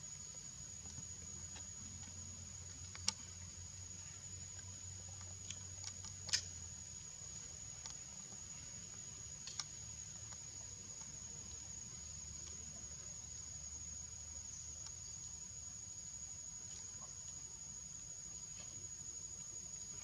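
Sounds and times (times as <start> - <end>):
insect drone: 0.0 - 20.0
sharp clicks: 9.4 - 10.4.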